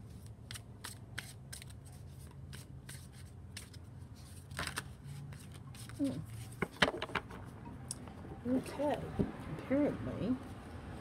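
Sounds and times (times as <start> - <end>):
cards being shuffled: 0.1 - 7.5.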